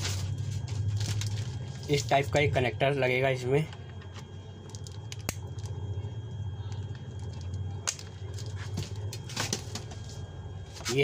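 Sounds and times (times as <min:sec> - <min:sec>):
plastic handling noise: 0:00.0 - 0:02.1, 0:06.9 - 0:10.2
steady low hum: 0:00.0 - 0:11.0.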